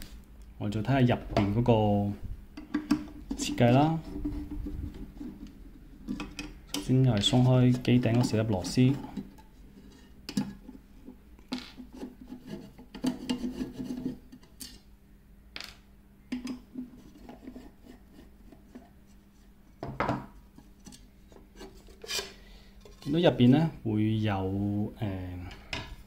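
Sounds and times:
metal lid being handled: 0:02.6 - 0:10.8, 0:11.5 - 0:14.8.

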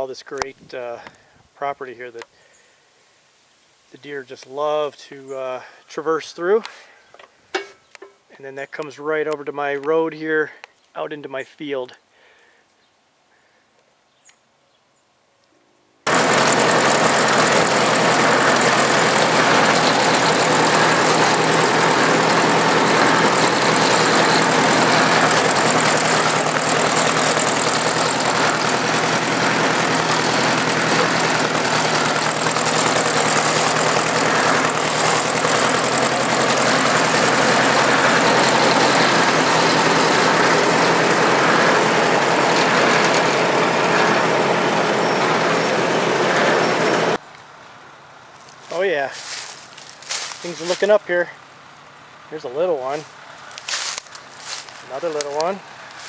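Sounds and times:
vehicle engine running: 0:16.1 - 0:47.2, 0:49.2 - 0:51.1, 0:53.0 - 0:56.0.

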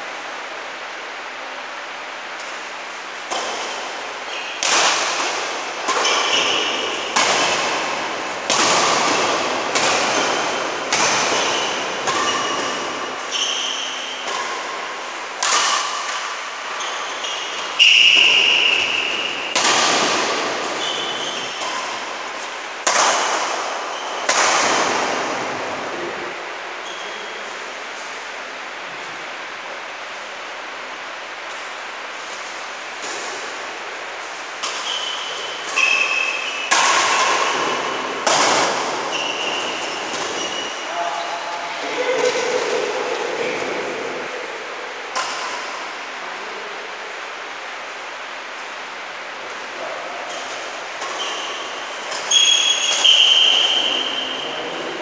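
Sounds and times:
rackets hitting shuttlecock: 0:02.4 - 0:25.9, 0:31.5 - 0:41.6, 0:45.1 - 0:46.1, 0:50.2 - 0:55.0
shoe squeak: 0:04.3 - 0:04.6, 0:06.0 - 0:07.1, 0:11.3 - 0:15.2, 0:16.7 - 0:19.5, 0:20.8 - 0:21.8, 0:23.9 - 0:24.3, 0:26.8 - 0:27.4, 0:34.8 - 0:36.7, 0:39.1 - 0:41.4, 0:51.1 - 0:54.7.

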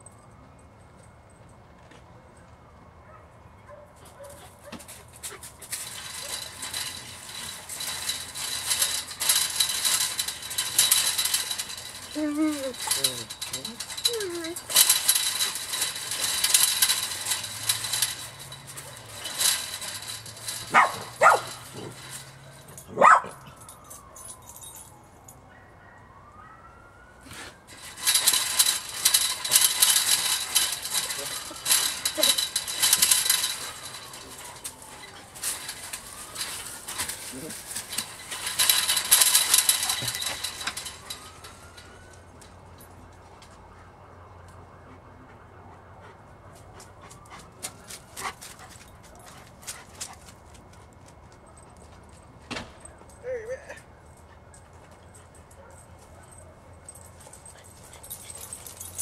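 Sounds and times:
chain-link fence rattling: 0:03.7 - 0:25.4, 0:27.2 - 0:43.6, 0:46.8 - 0:59.0
rustling in grass and leaves: 0:04.1 - 0:23.0, 0:27.2 - 0:42.4
dog yipping: 0:20.7 - 0:21.5.

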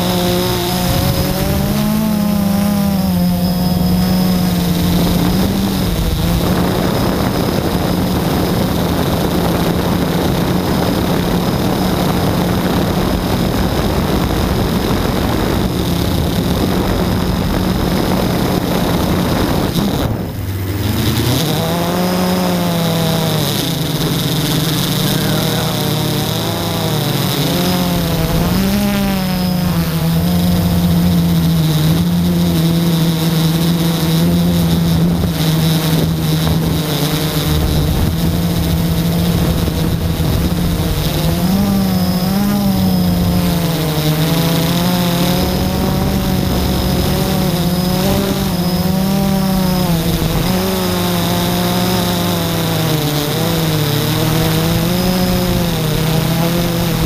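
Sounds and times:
quadcopter motors whining: 0:00.0 - 0:57.0.

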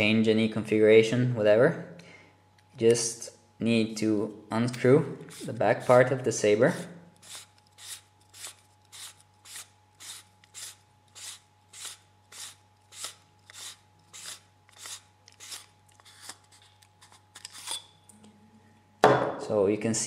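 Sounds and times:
metal threads scraping rasp: 0:06.7 - 0:16.4.

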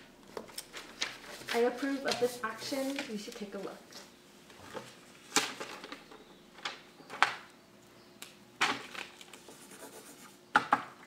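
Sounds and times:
paper rustling: 0:00.4 - 0:03.7.

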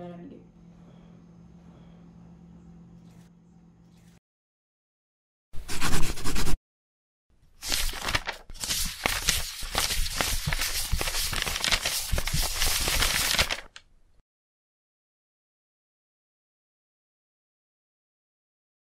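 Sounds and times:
paper rustling and crinkling: 0:07.5 - 0:13.8.

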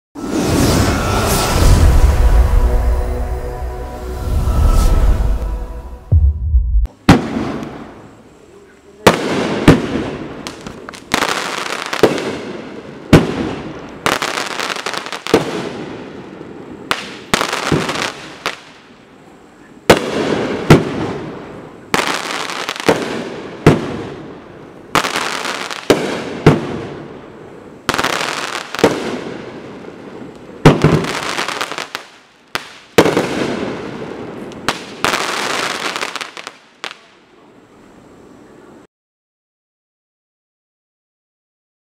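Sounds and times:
fireworks crackling after bangs: 0:06.8 - 0:08.3, 0:09.0 - 0:19.0, 0:19.9 - 0:37.2.

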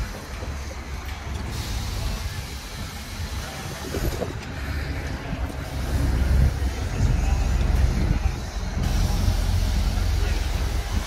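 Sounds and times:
car engine low exhaust drone: 0:00.0 - 0:11.0.

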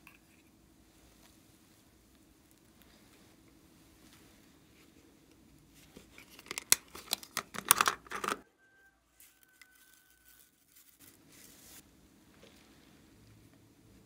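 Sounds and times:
plastic clicks and crackles: 0:06.1 - 0:08.4.

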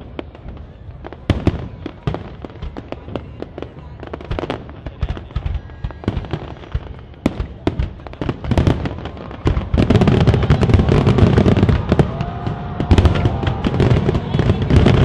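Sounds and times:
fireworks popping and crackling: 0:00.0 - 0:15.0.

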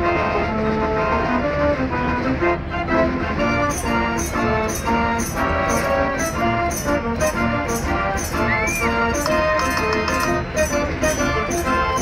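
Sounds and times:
fairground organ playing a tune: 0:00.0 - 0:12.0
percussion beat: 0:03.5 - 0:12.0.

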